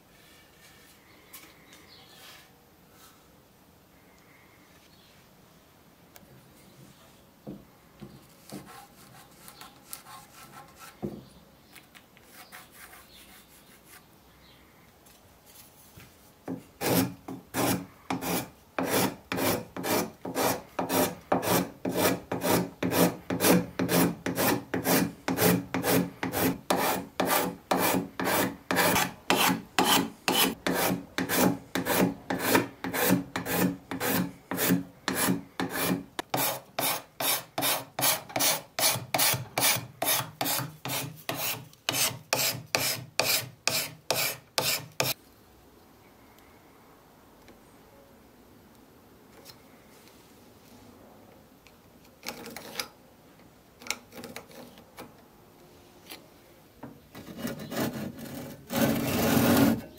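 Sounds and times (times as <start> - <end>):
hand file scraping: 8.4 - 11.0, 16.8 - 45.2, 57.2 - 59.9.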